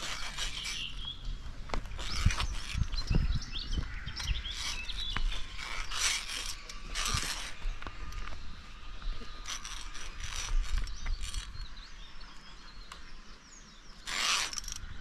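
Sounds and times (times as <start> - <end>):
carabiners scraping along cable: 0.0 - 12.6, 13.9 - 15.0.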